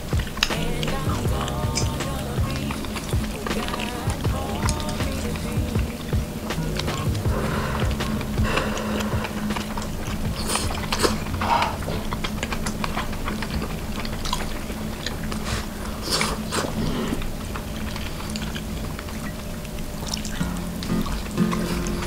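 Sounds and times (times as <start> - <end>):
chewing and biting: 0.0 - 22.0
steady low hum: 0.0 - 22.0.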